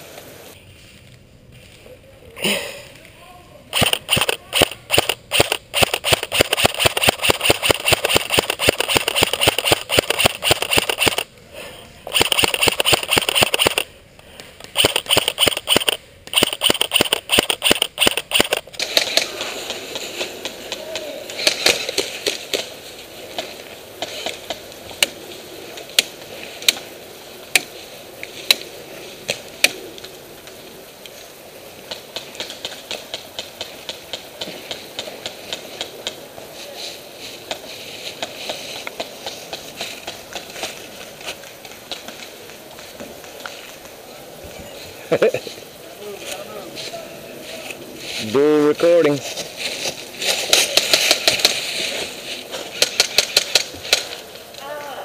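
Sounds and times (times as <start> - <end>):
airsoft guns full-auto bursts: 3.7 - 11.3, 12.1 - 13.9, 14.7 - 18.7
single airsoft shots clicking: 3.8 - 11.3, 12.1 - 13.9, 14.7 - 18.8.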